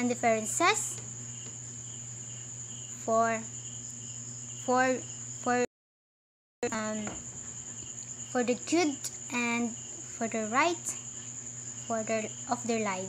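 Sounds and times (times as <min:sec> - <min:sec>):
high-pitched insect trill: 0:00.0 - 0:05.7, 0:06.6 - 0:13.0
low steady hum: 0:00.0 - 0:05.7.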